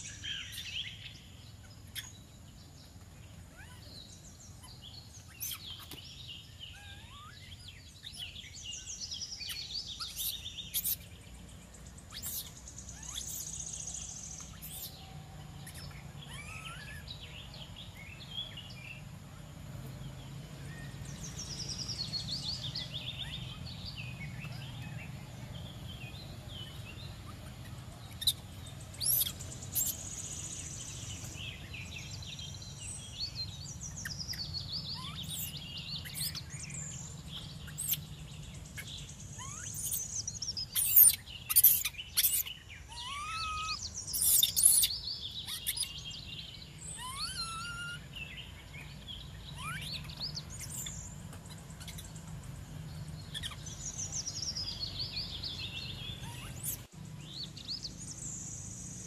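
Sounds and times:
bird trills: 0.0 - 2.3, 3.5 - 11.2, 12.0 - 18.7, 26.0 - 52.3, 53.2 - 56.9
birds chirping and calling: 0.0 - 59.0.

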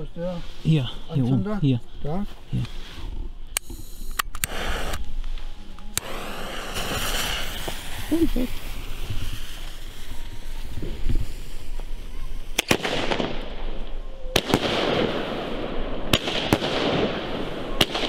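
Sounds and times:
fireworks hissing and crackling: 0.0 - 1.2, 2.6 - 18.0
fuse sizzling: 3.6 - 12.6
firework reports: 6.0 - 18.0.

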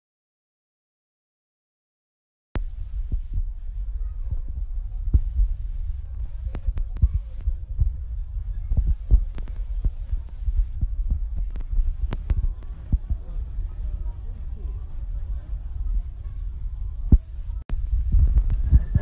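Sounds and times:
low rumble: 2.6 - 19.0
irregular thumps: 17.1 - 19.0.

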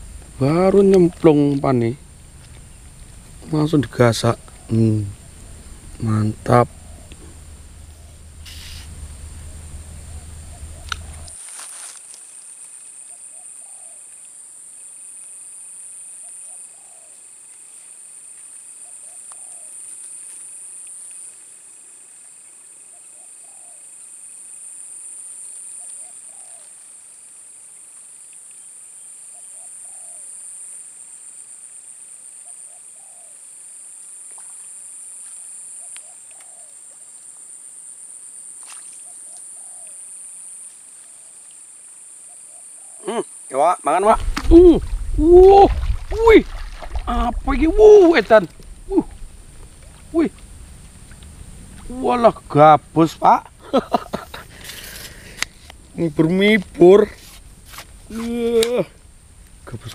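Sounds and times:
high-pitched insect chorus: 0.0 - 59.9
short low bird call: 4.3 - 11.4, 44.0 - 50.2.

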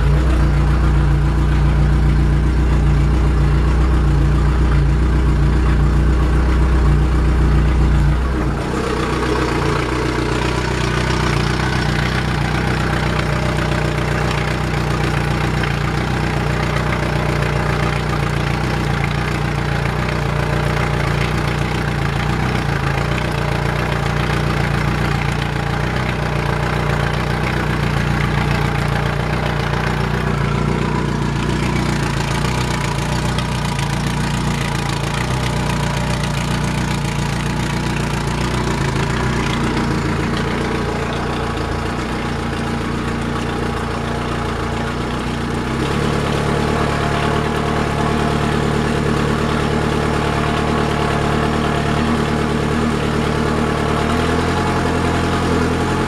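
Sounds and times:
outboard motor idling: 0.0 - 56.0.

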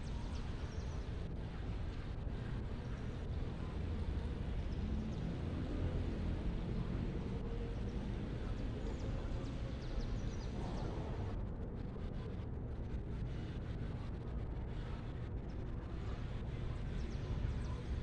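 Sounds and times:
low outdoor rumble: 0.0 - 18.0.

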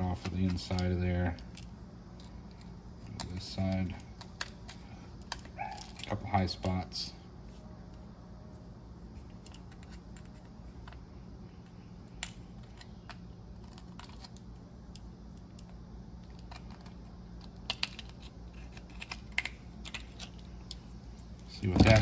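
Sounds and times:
steady low hum: 0.0 - 22.0
small metal parts clicking: 12.1 - 20.9.

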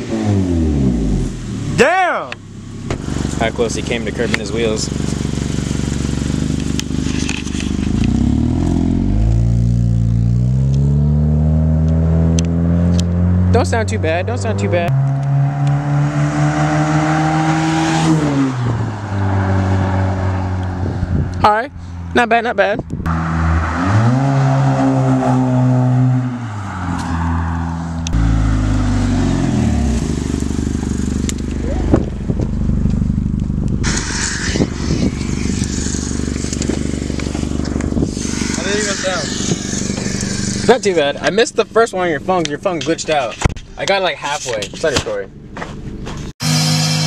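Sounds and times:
car exhaust accelerating: 0.0 - 22.2, 22.8 - 43.8
deep exhaust drone: 28.0 - 40.9.

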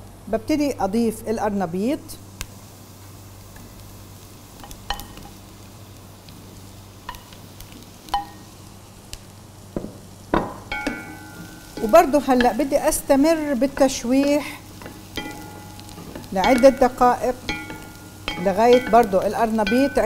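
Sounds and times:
faint sizzle: 0.0 - 20.0
wooden spoon and bowl clinking on pot: 10.4 - 12.6, 14.8 - 20.0.

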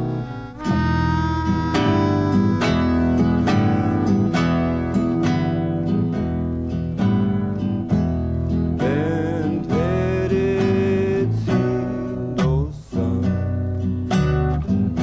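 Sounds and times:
sliding melodic lead line: 0.0 - 10.6
acoustic guitar strumming chords: 0.0 - 15.0.

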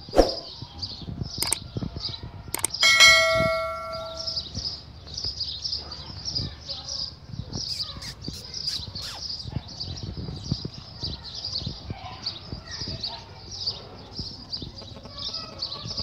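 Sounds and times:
small birds chirping: 0.0 - 16.0
sharp clicks: 1.4 - 1.6, 2.5 - 2.8.

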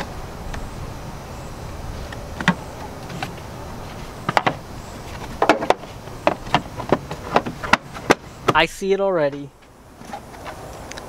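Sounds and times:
low outdoor background hum: 0.0 - 11.0.

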